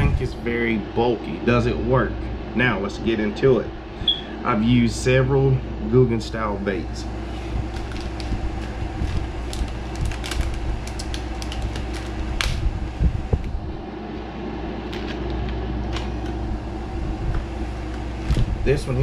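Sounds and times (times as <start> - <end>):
low room hum: 0.0 - 19.0
plastic bag crinkling: 7.6 - 12.6.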